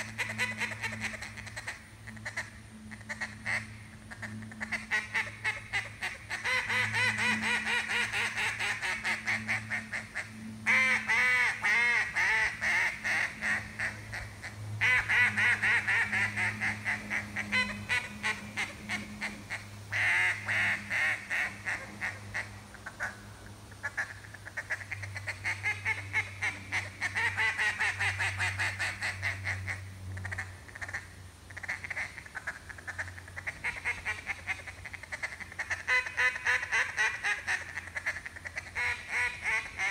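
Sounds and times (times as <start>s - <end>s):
duck call quacks: 0.0s - 23.2s, 23.8s - 39.9s.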